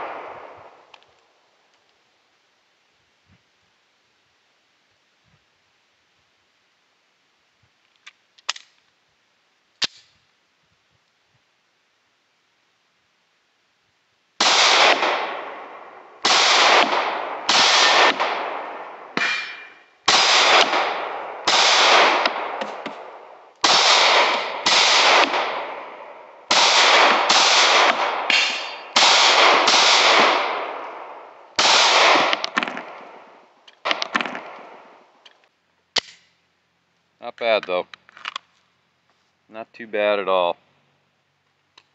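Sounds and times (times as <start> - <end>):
pistol shots with ringing echo: 0.0 - 0.8, 14.4 - 35.0.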